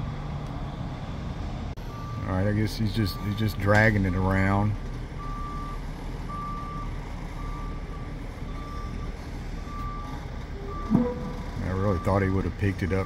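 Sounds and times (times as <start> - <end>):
reversing alarm beeping: 5.2 - 12.3
low steady rumble: 9.8 - 12.0.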